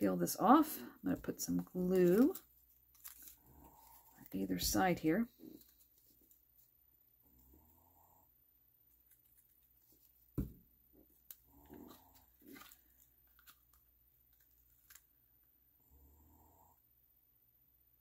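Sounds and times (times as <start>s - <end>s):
glue bottle knocking on table: 10.4s - 10.6s.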